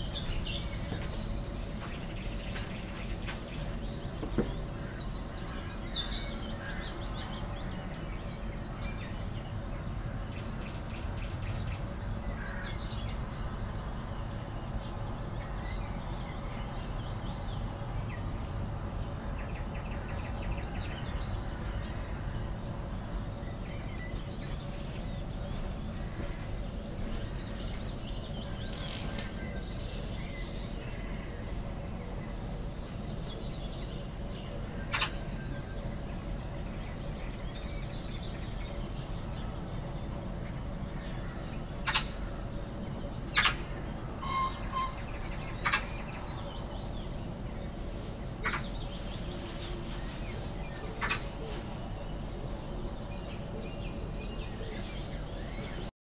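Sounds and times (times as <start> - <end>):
low background noise: 0.0 - 55.9
songbirds chirping and trilling: 0.0 - 55.9.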